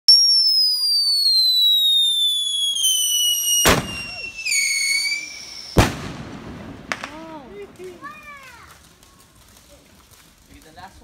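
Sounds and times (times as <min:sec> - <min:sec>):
firework whistle falling in pitch: 0:00.1 - 0:05.8
firework bang: 0:00.1 - 0:08.9.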